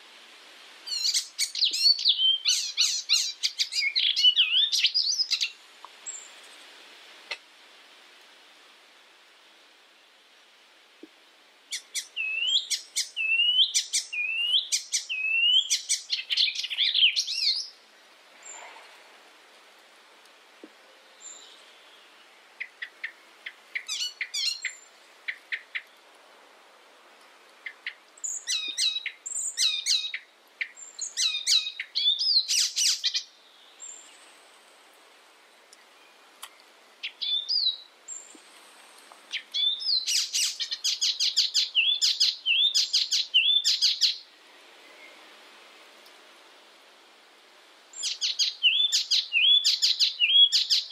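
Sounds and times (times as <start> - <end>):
warbler singing: 0.9 - 6.3, 11.7 - 17.8, 21.0 - 26.0, 27.6 - 34.3, 35.8 - 38.4, 39.3 - 44.2, 47.9 - 50.9.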